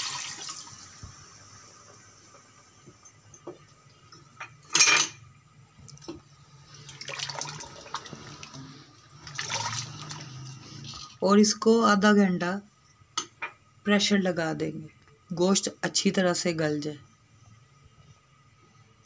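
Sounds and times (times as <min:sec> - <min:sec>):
water pouring into a pot: 0:00.0 - 0:01.0, 0:06.8 - 0:10.5.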